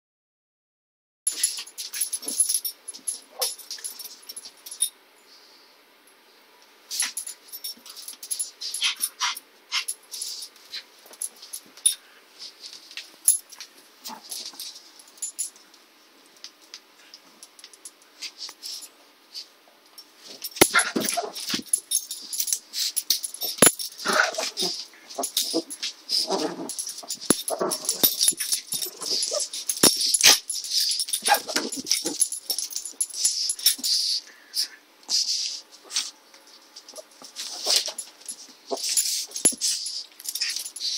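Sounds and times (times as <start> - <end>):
dogs play-fighting: 1.3 - 4.8, 6.9 - 12.0, 20.3 - 36.2, 36.8 - 40.9.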